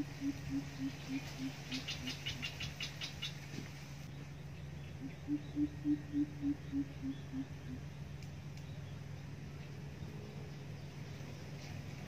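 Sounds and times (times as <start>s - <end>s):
bird deep hoots: 0.0s - 3.2s, 4.9s - 7.9s
steady low hum: 0.0s - 12.0s.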